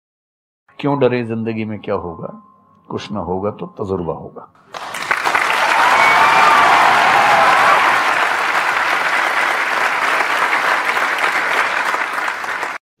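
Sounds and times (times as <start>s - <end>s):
audience clapping: 4.7s - 12.8s
people cheering: 4.7s - 12.8s.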